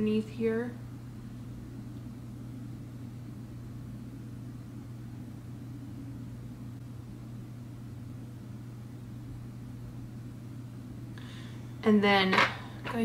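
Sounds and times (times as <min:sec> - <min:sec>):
low room noise hum: 0:00.0 - 0:13.0.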